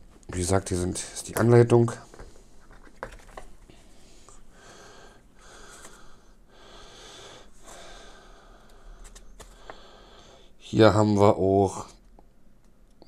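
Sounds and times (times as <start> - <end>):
breathing through the nose: 3.7 - 10.6.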